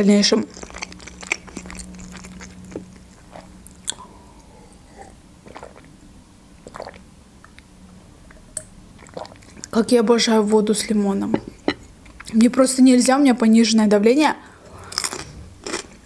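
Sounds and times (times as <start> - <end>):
chewing: 0.3 - 4.1, 14.9 - 16.0
sipping and swallowing: 1.6 - 6.0, 6.6 - 7.6, 8.3 - 9.7.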